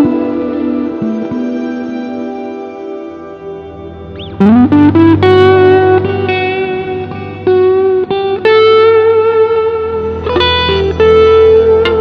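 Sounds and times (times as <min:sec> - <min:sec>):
low sustained drone: 0:00.0 - 0:12.0
plucked acoustic guitar notes: 0:04.2 - 0:12.0.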